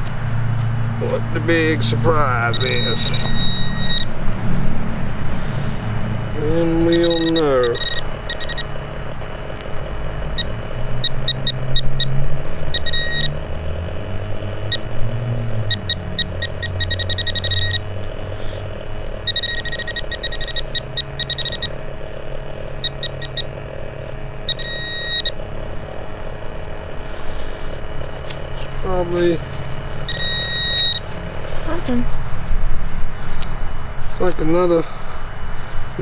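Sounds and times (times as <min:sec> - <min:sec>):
low rumble: 0:00.0 - 0:10.9
metal detector probe beeping: 0:01.0 - 0:04.2, 0:06.2 - 0:13.5, 0:14.3 - 0:32.2.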